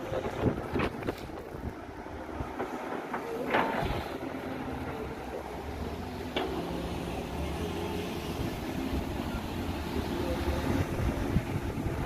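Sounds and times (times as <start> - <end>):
excavator diesel engine running: 0.0 - 12.0.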